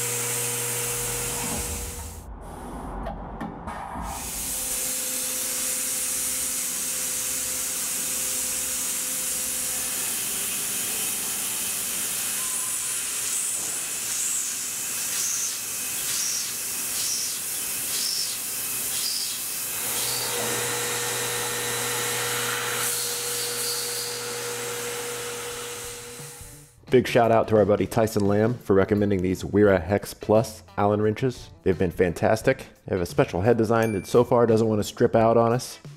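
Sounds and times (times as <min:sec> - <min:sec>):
low hum: 0:00.9 - 0:04.8
loud hiss of air: 0:04.0 - 0:06.9, 0:12.4 - 0:20.2
cnc mill machining aluminium: 0:04.1 - 0:26.2.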